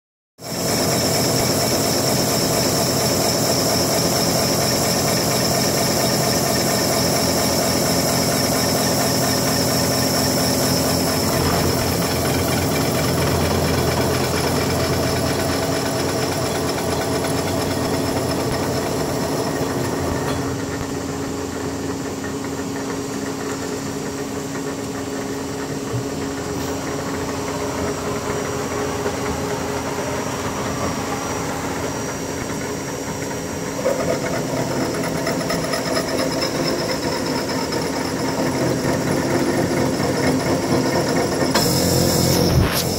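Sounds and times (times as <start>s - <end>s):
milling machine cutting metal: 0.5s - 20.8s, 33.8s - 42.9s.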